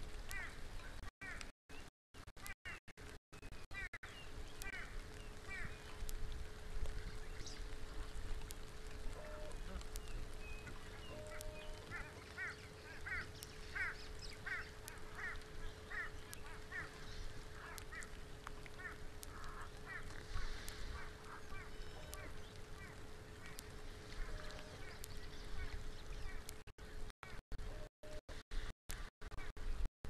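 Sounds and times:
rain falling on water: 0.0 - 1.5, 3.0 - 27.4
bird calling repeated notes: 9.0 - 26.5.

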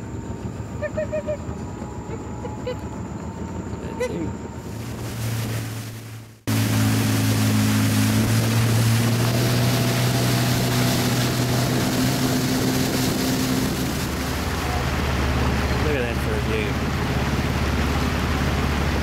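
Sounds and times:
boat engine hum: 0.0 - 19.0
wind and water rushing: 3.8 - 19.0.

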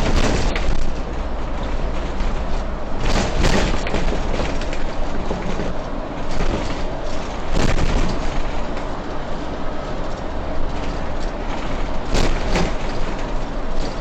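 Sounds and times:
bus engine and road noise: 0.0 - 14.0.

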